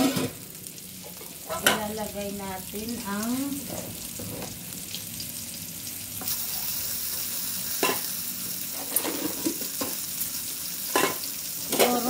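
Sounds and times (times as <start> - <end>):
utensils and dishes clinking: 0.0 - 0.4, 1.0 - 1.9, 7.8 - 8.1, 8.7 - 10.0, 10.9 - 12.0
potatoes sizzling in a pan: 0.0 - 12.0.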